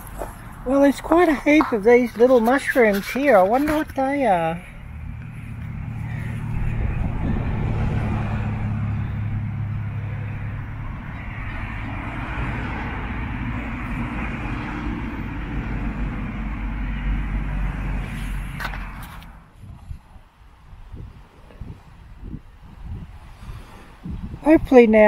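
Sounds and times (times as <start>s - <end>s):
motor engine humming: 0.0s - 19.5s.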